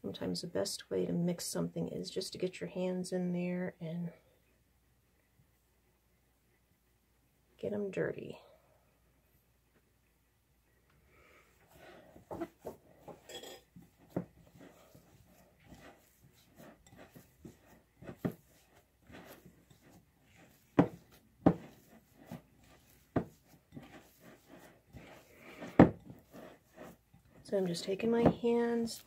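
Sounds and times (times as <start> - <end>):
hands squishing dough: 11.6 - 29.0.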